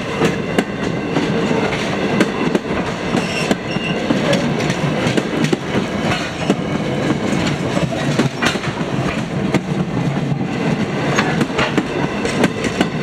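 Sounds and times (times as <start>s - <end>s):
train wheels rumbling on rail: 0.0s - 13.0s
wheels clicking over track joints: 3.1s - 10.1s.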